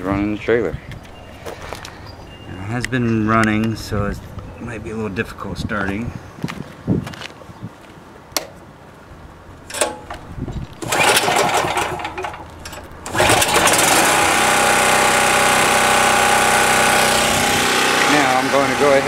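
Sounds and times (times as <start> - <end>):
generator engine running: 9.2 - 19.0
recoil cord pulls: 9.7 - 18.2.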